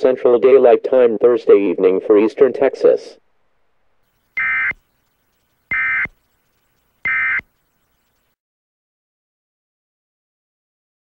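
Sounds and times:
buzzing digital data tones: 0:04.1 - 0:08.3.

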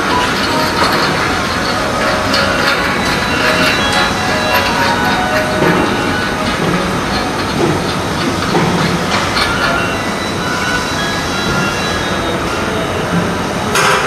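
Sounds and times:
loud rumbling background noise: 0:00.0 - 0:14.0.

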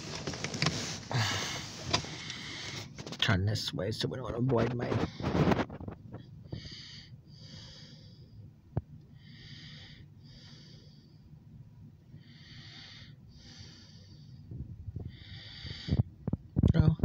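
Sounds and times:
wheezy breathing: 0:00.6 - 0:03.0, 0:06.4 - 0:08.4, 0:09.1 - 0:11.3, 0:12.2 - 0:16.1.

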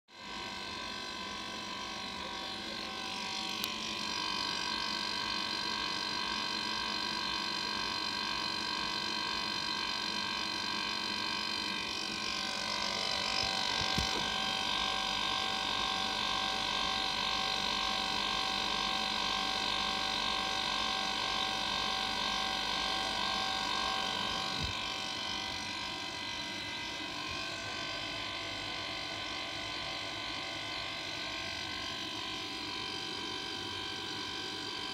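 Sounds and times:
compressor humming and whining: 0:00.1 - 0:34.9.

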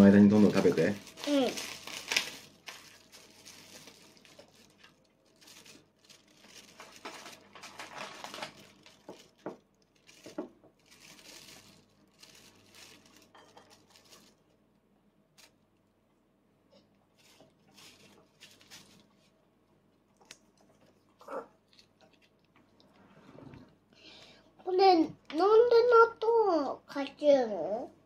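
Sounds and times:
plastic packaging crinkling and tearing: 0:00.2 - 0:14.6, 0:15.4 - 0:15.6, 0:17.2 - 0:19.4, 0:20.2 - 0:22.5.

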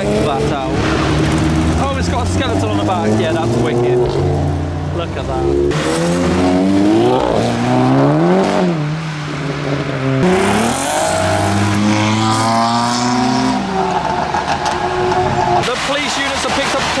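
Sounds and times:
car engines accelerating: 0:00.0 - 0:17.0.

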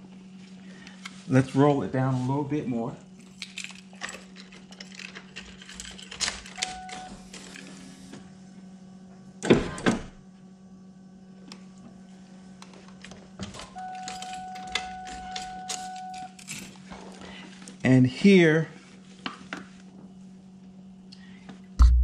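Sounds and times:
power window motor running: 0:06.6 - 0:08.3.

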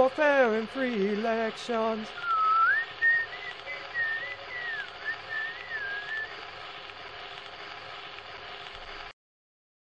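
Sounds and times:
steady hiss: 0:00.0 - 0:09.1
person whistling melody: 0:02.2 - 0:06.3.

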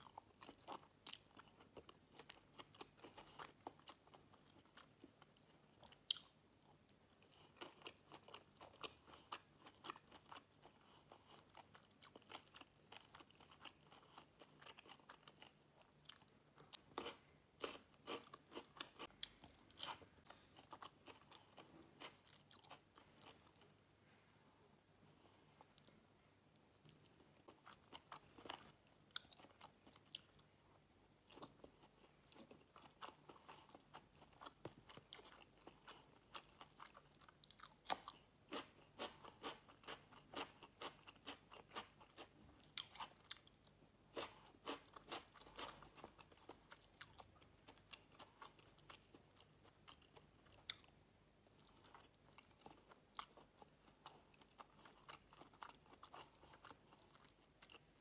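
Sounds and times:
close-miked chewing with mouth clicks: 0:31.3 - 0:58.0.

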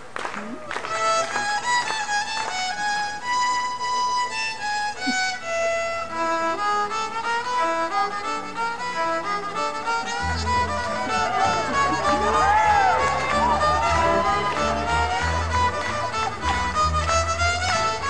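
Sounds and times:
solo fiddle melody: 0:00.9 - 0:18.0
orchestral accompaniment: 0:06.1 - 0:18.0.

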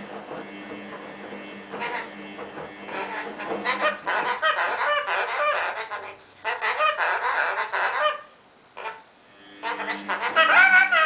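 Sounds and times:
lorikeet screeching and chattering: 0:03.0 - 0:11.0.

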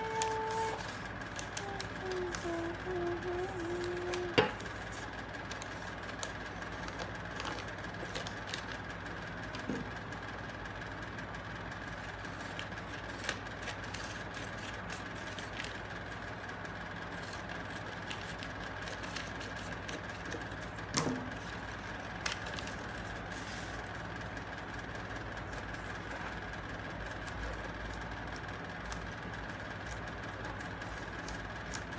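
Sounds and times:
paper rustling: 0:00.0 - 0:08.8, 0:12.0 - 0:15.8, 0:17.1 - 0:24.0, 0:27.0 - 0:31.9
scissors cutting paper: 0:00.0 - 0:08.8, 0:11.8 - 0:16.0, 0:16.8 - 0:24.0, 0:24.9 - 0:31.9
steady background hum: 0:00.0 - 0:31.9.

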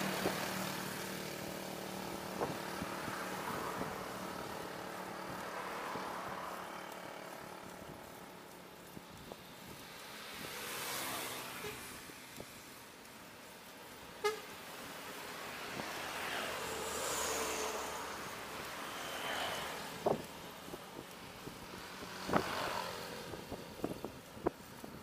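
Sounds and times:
motorbikes passing: 0:00.0 - 0:25.0
wind and road noise: 0:00.0 - 0:25.0
short horn toot: 0:14.2 - 0:14.6.

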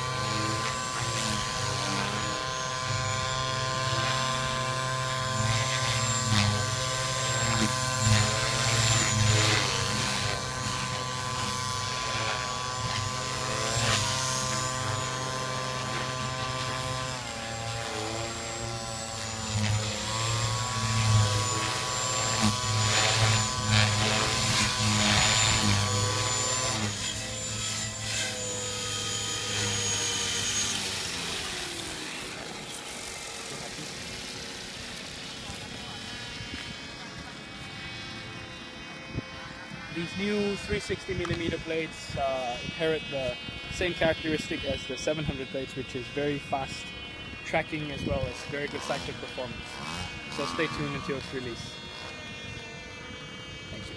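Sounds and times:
rotor blade whoosh: 0:00.0 - 0:36.9
model helicopter motor whine: 0:00.0 - 0:53.9.

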